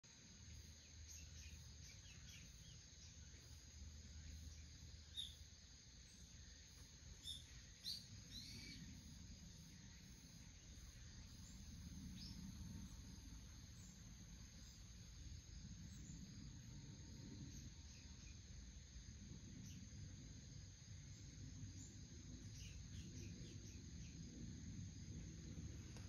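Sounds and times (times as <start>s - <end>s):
low steady hum: 0.0s - 26.0s
faint high bird chirps: 0.5s - 14.9s.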